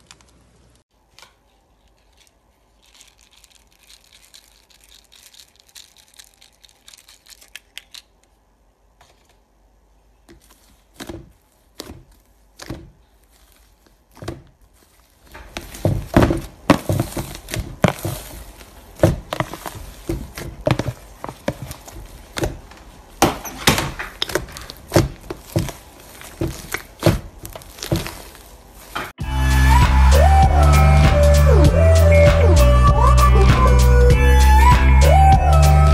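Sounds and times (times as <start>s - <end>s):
slime squishing and crackling: 1.7s - 8.2s, 10.3s - 29.2s.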